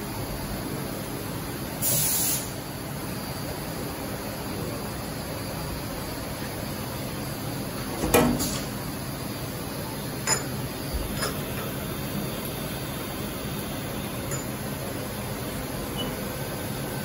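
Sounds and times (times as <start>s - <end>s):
metallic clanks and clicks: 14.3s - 14.6s.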